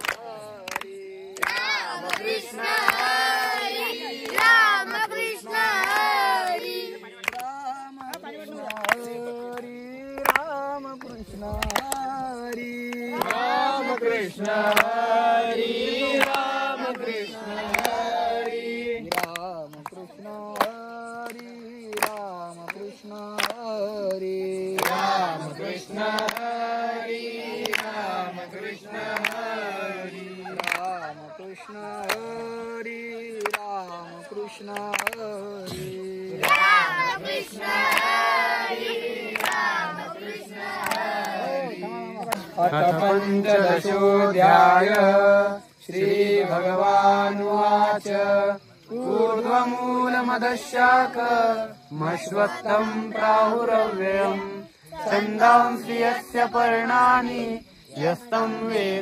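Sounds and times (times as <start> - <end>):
hand claps: 0.0 - 3.5, 4.1 - 15.1, 16.1 - 26.6, 27.6 - 28.4, 29.0 - 32.5, 33.3 - 41.5, 42.2 - 43.6, 44.4 - 45.1
children singing together: 0.0 - 7.2, 35.4 - 45.0, 48.9 - 59.0
group chanting in unison: 0.0 - 59.0.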